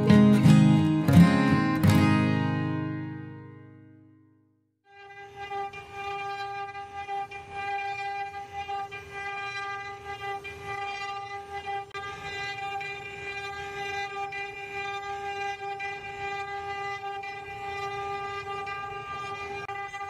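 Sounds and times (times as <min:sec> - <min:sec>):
router spindle high whine: 0:00.0 - 0:01.1, 0:04.9 - 0:20.0
bit cutting wood rumble: 0:04.9 - 0:20.0.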